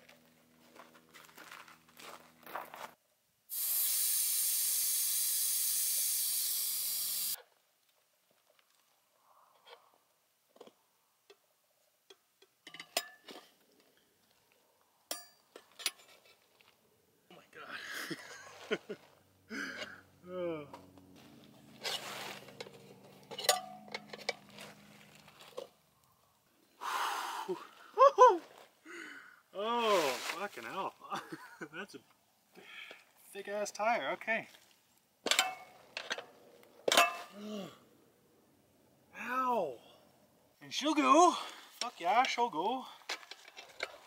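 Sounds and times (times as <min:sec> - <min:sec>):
air hissing from tyre valve: 0:03.5 - 0:07.4
tire irons clinking on rim: 0:22.4 - 0:25.2.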